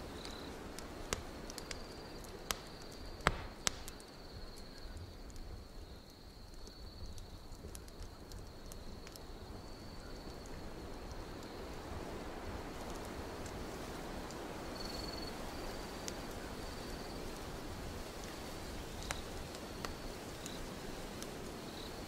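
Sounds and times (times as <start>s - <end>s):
wood fire crackling: 0.0s - 22.0s.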